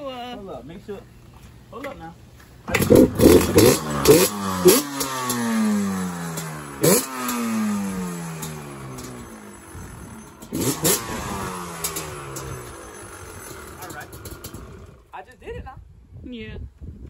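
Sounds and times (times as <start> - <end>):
two-stroke engine revving: 2.7 - 15.1.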